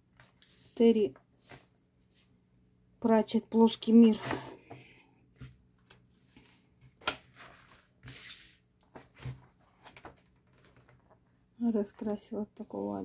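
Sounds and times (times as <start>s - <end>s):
paper pages rustling: 5.8s - 11.2s.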